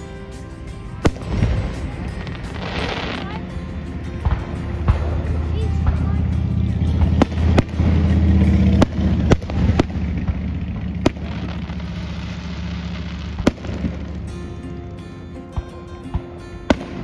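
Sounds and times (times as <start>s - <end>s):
firework shells bursting: 4.2s - 14.3s.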